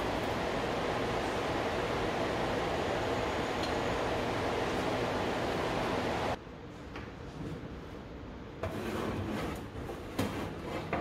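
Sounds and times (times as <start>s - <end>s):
steady rushing noise: 0.0s - 6.4s.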